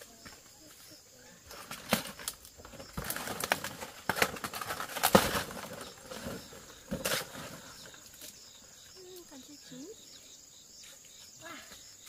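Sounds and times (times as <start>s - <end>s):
banana leaves rustling: 0.0s - 9.4s.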